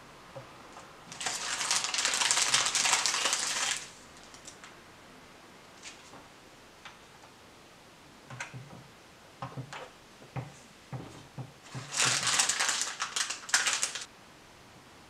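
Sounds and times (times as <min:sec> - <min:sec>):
plastic bag crinkling: 0:01.1 - 0:04.7, 0:11.6 - 0:14.1.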